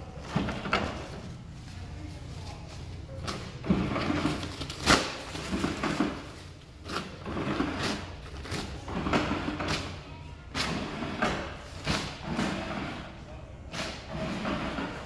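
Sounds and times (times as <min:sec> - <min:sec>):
paper towel dispenser motor whirring: 0:10.6 - 0:15.0.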